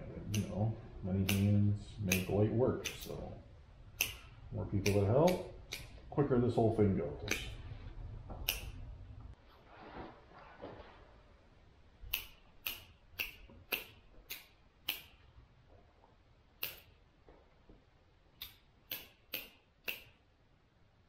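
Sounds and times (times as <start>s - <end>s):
hand pruners snipping branches: 0.2s - 0.6s, 1.2s - 3.2s, 4.0s - 6.0s, 12.1s - 15.1s, 18.4s - 20.2s.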